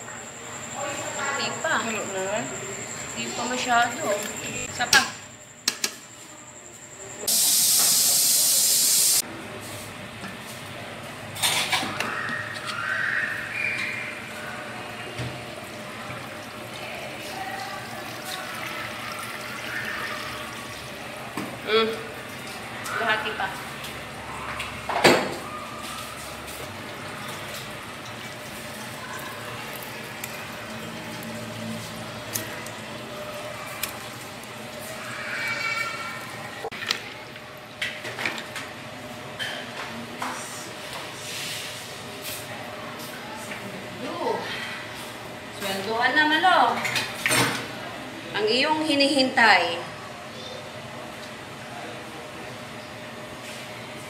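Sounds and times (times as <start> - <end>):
loud steady hiss: 7.3 - 9.2
water pouring into container: 16.2 - 20.8.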